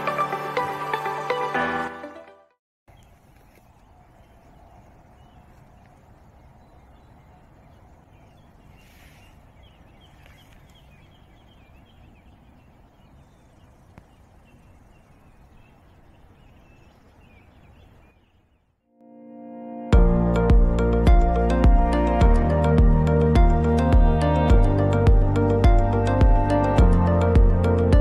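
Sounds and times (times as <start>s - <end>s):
birds chirping: 2.9s - 18.8s.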